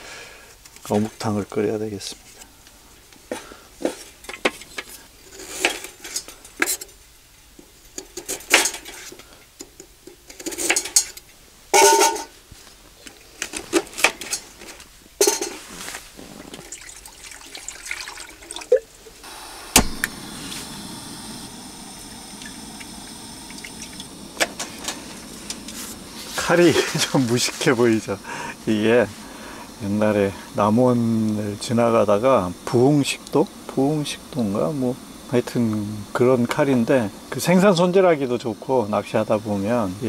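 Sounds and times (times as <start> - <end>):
steady rushing hiss: 0.0 - 40.0
pots and dishes clattering: 8.0 - 11.2, 11.8 - 12.4, 13.4 - 17.0
sharp knock: 19.7 - 20.1.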